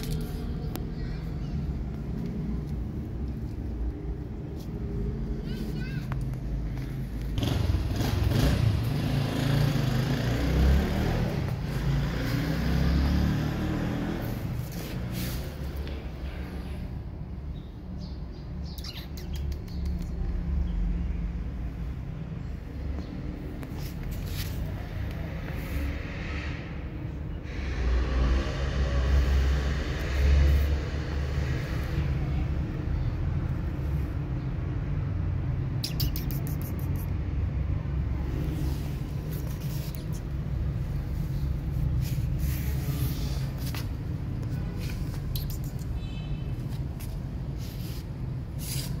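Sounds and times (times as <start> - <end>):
vehicle engine rumble: 0.0 - 49.0
low outdoor rumble: 37.0 - 45.9.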